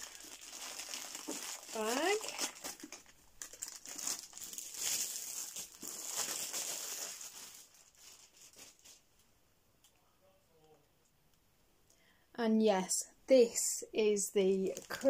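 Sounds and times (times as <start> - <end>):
plastic bag crinkling: 0.0 - 9.0, 14.4 - 15.0.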